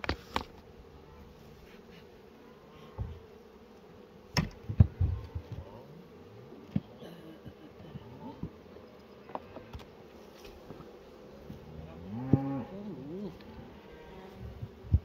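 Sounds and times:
bees buzzing: 0:00.0 - 0:15.0
hive equipment knocks and thumps: 0:04.3 - 0:05.7.

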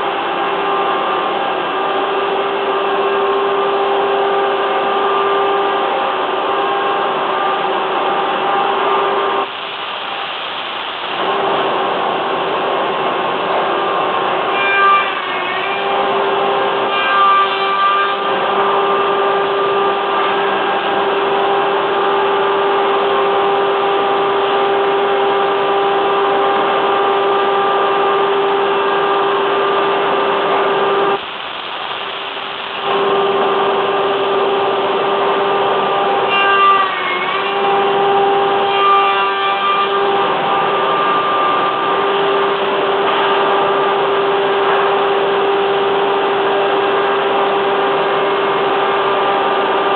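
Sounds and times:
woodworking machine motor hum: 0:00.0 - 0:09.6, 0:11.2 - 0:31.2, 0:32.8 - 0:49.9.

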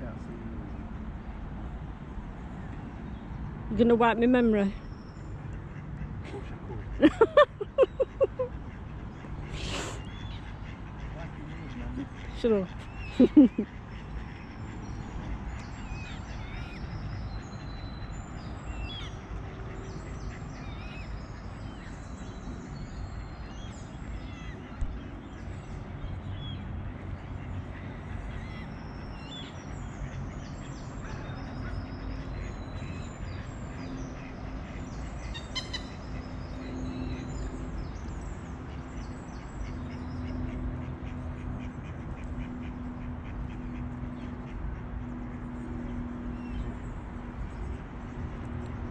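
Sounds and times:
songbirds chirping: 0:00.0 - 0:48.9
steady background hum: 0:00.0 - 0:48.9
ducks quacking: 0:05.5 - 0:17.6, 0:39.3 - 0:45.5.

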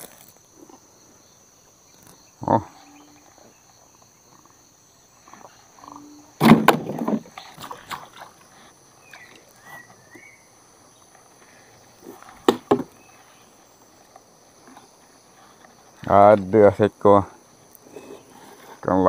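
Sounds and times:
crickets chirring: 0:00.0 - 0:19.0
sharp knocks: 0:06.4 - 0:07.3, 0:12.4 - 0:12.9
short chirping calls: 0:09.0 - 0:11.1.

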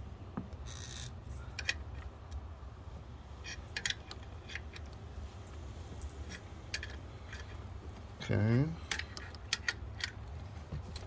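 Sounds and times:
low steady hum: 0:00.0 - 0:11.0
metallic tool clicks and clinks: 0:00.7 - 0:02.5, 0:03.4 - 0:10.2.

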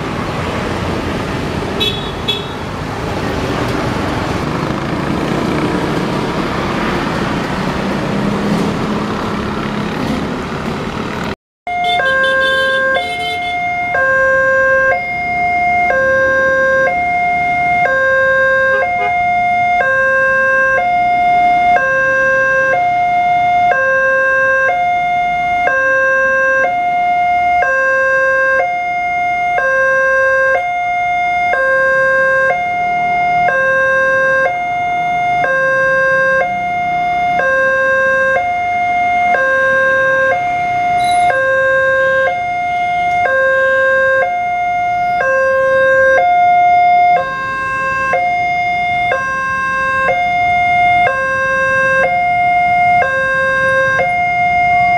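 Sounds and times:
two-tone level-crossing alarm: 0:11.7 - 0:54.9.

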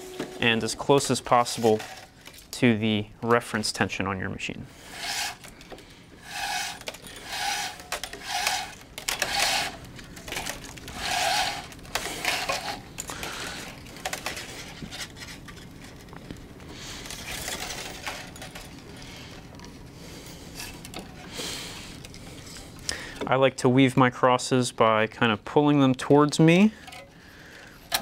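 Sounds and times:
string zipping through racquet: 0:06.2 - 0:09.9, 0:10.8 - 0:12.9.

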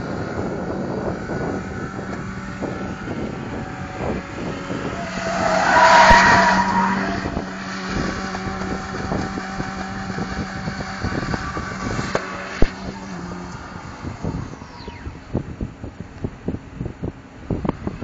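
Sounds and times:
truck engine revving high: 0:00.0 - 0:15.4
tyres squealing: 0:04.8 - 0:08.4.

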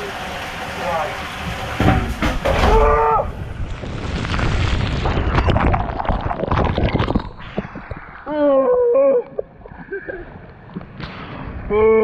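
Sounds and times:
water rushing and splashing: 0:00.0 - 0:08.3
water buffeting microphone: 0:00.0 - 0:12.0.

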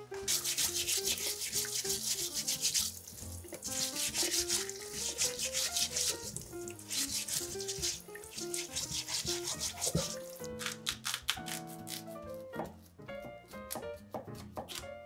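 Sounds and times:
gentle melodic music: 0:00.0 - 0:15.0
rhythmic scraping strokes: 0:00.2 - 0:10.2.

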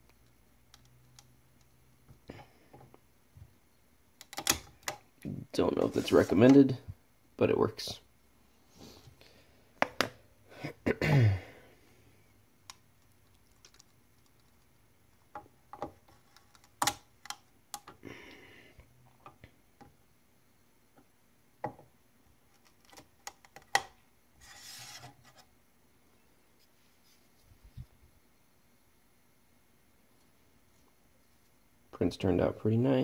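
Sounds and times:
short scrapes: 0:24.4 - 0:25.4.

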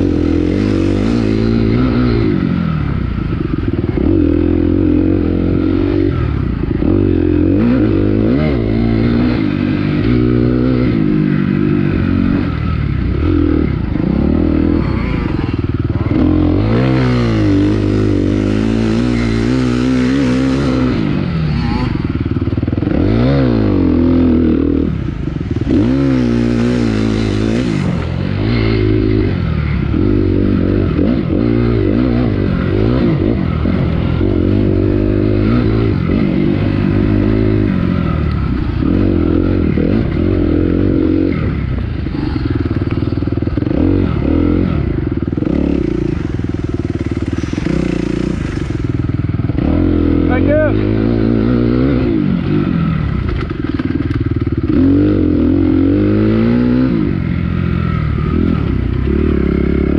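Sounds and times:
dirt bike engine racing: 0:00.0 - 0:59.9.

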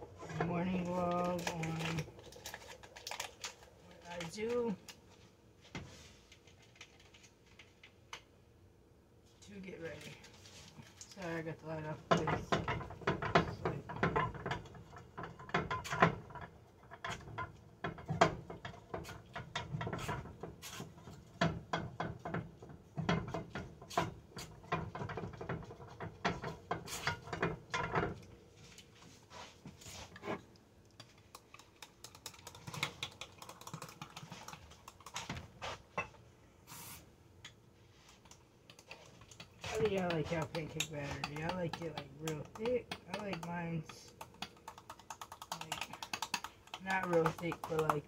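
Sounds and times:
utensil clattering against pan: 0:12.1 - 0:28.2.

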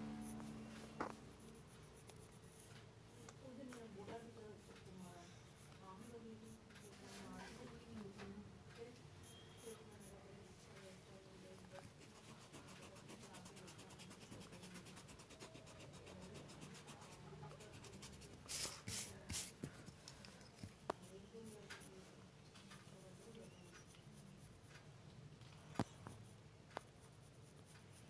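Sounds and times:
pencil scratching on paper: 0:00.0 - 0:07.7, 0:09.2 - 0:10.3, 0:11.7 - 0:19.8, 0:27.0 - 0:28.0
rubs across paper: 0:11.9 - 0:19.6.

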